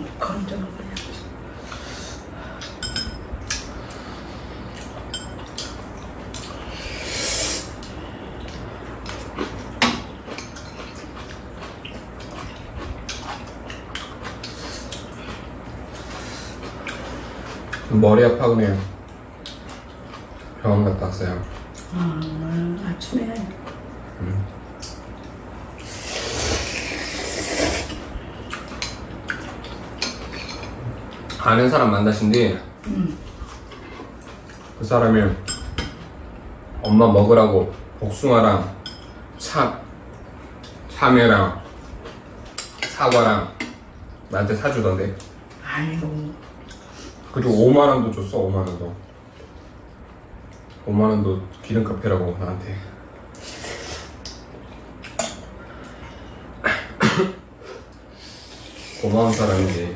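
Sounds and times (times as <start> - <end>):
utensil clinking on bowl: 2.8 - 3.3, 4.8 - 5.7
noodles slurping: 25.8 - 28.0.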